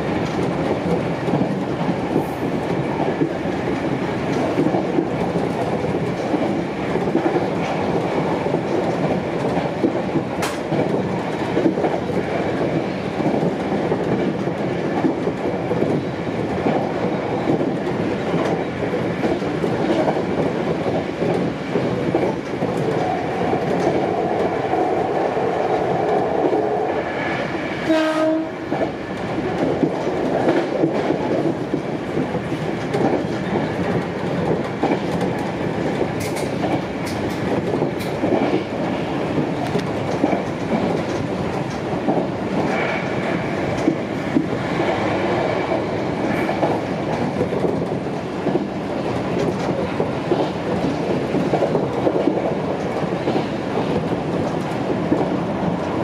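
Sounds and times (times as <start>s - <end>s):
train running noise: 0.0s - 56.0s
wheels clacking over rail joints: 28.0s - 56.0s.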